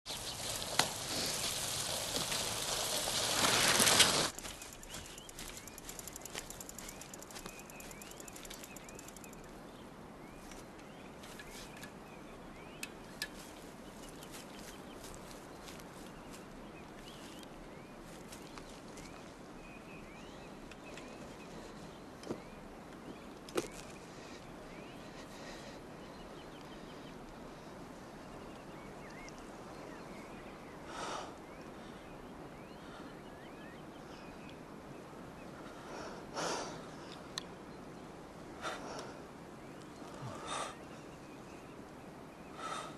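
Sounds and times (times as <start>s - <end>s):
birds chirping: 0.0s - 42.9s
steady outdoor hiss: 0.1s - 42.9s
bicycle freewheel ticking: 0.4s - 9.5s.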